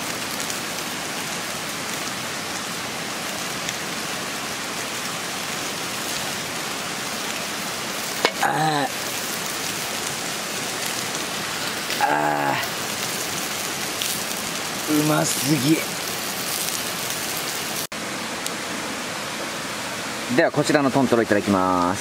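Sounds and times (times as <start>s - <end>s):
meat sizzling on a grill: 0.0s - 17.9s
charcoal crackling: 0.0s - 18.6s
brief vocal sound: 8.3s - 9.0s.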